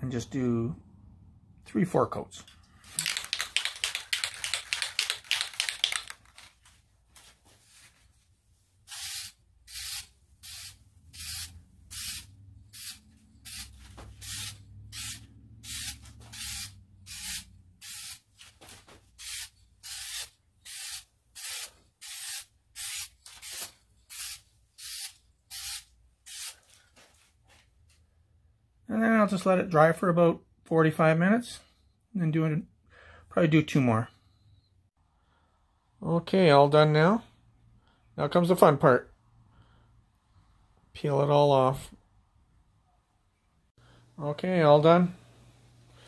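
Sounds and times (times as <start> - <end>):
aerosol can rattling: 2.9 - 6.6
spray paint hissing: 3.0 - 6.1, 8.9 - 18.3, 19.2 - 26.6.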